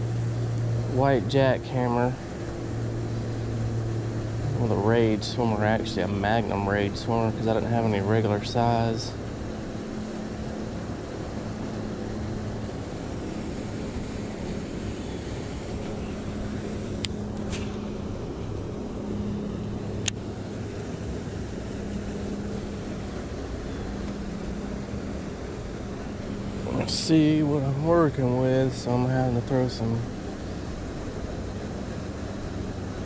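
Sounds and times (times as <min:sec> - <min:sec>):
low mechanical hum: 0:00.0 - 0:33.0.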